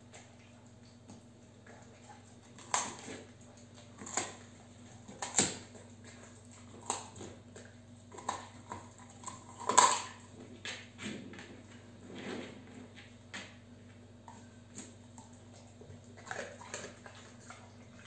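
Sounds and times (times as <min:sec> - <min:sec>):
dog crunching hard treat: 0:01.1 - 0:13.6, 0:14.2 - 0:18.0.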